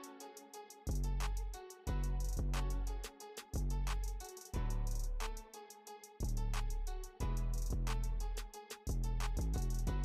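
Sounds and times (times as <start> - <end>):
high ticking beat: 0.8 - 1.4, 2.0 - 3.0, 3.6 - 5.2, 7.2 - 8.2, 8.8 - 10.0
deep sustained bass notes: 1.9 - 3.0, 3.6 - 3.9, 6.2 - 10.0.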